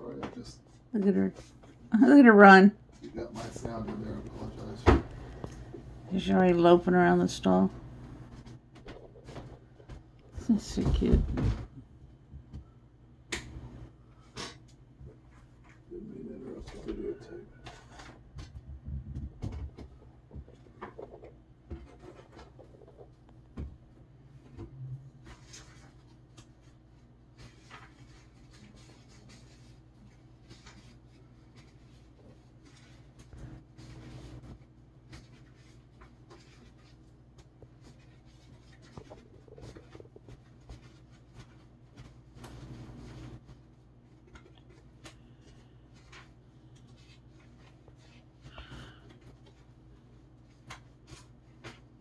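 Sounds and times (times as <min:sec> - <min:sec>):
steady low hum: 0:00.0 - 0:52.0
faint scratching and rubbing: 0:19.5 - 0:23.2, 0:24.4 - 0:51.9.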